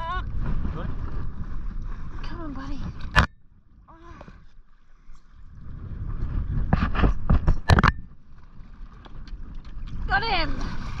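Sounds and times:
wind and water rumble: 0.0s - 11.0s
knocks and splashes: 2.2s - 3.4s, 6.3s - 11.0s.

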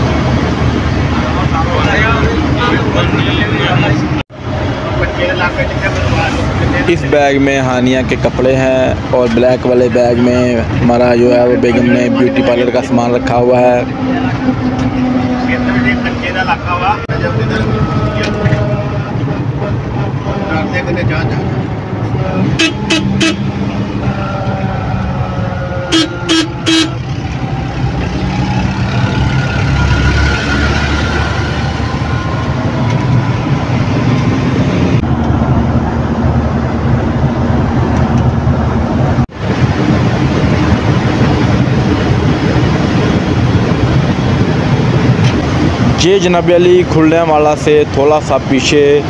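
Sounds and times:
engine and road noise: 0.0s - 49.0s
vehicle horn short toots: 22.6s - 23.5s, 25.8s - 27.0s.

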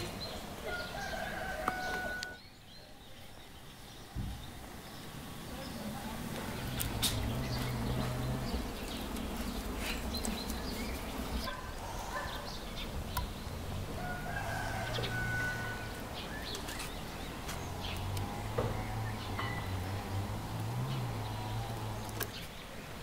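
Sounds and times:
rooster crowing: 0.6s - 2.4s, 13.9s - 16.1s.

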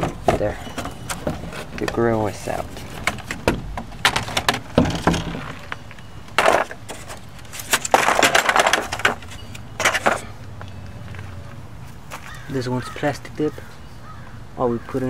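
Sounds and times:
plastic grille knocks and clatters: 2.8s - 5.7s, 7.7s - 9.2s.

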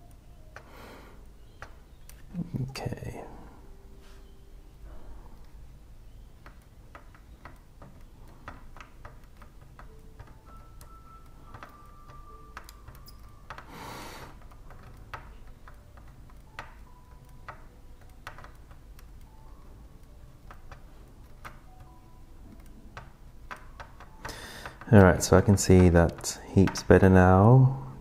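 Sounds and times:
hand tools clicking on circuit board: 5.4s - 27.5s.

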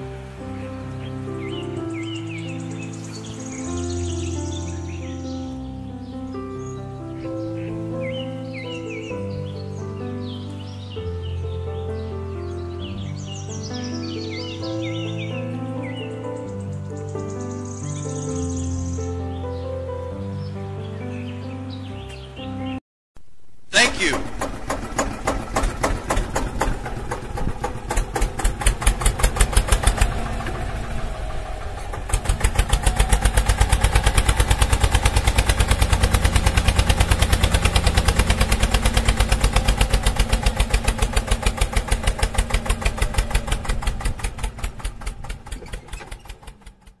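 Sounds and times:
tractor engine chugging: 23.8s - 47.0s.

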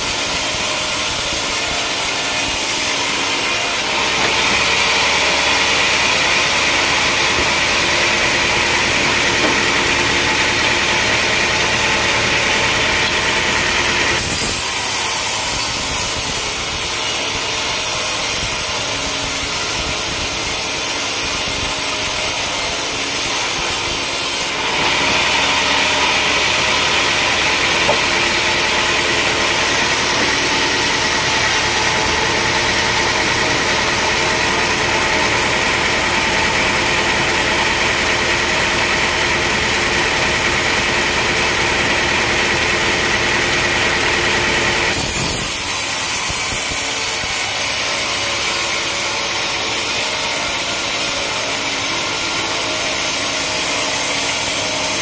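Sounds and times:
band saw ripping a log: 0.0s - 37.3s, 44.2s - 55.0s.

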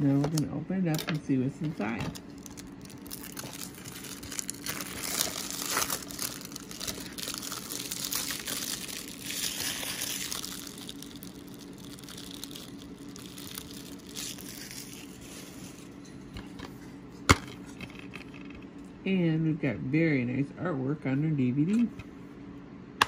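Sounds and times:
plastic wrap crinkling: 1.8s - 16.0s.

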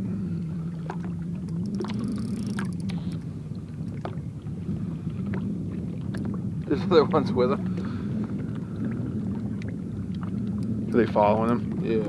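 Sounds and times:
boat motor humming: 0.0s - 12.0s
light clicks and taps: 10.6s - 11.7s.

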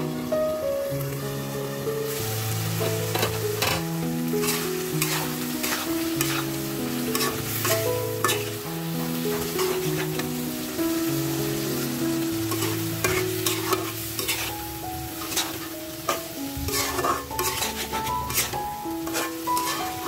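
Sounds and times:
curry sizzling: 0.0s - 20.0s
slow background music: 0.0s - 20.0s
metal spatula scraping a pot: 3.1s - 3.8s, 4.4s - 6.5s, 7.1s - 8.5s, 9.4s - 10.2s, 12.5s - 14.6s, 15.2s - 20.0s.

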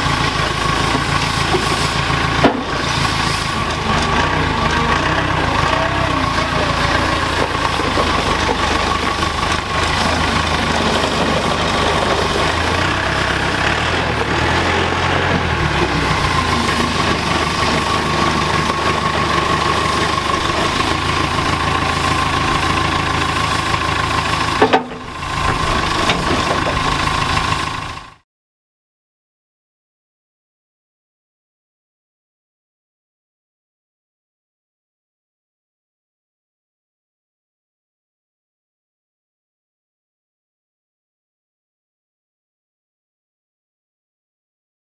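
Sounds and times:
diesel engine running: 0.0s - 28.2s.

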